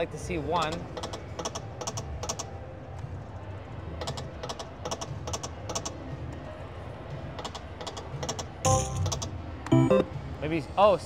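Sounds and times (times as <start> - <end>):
casino din: 8.7 - 9.1.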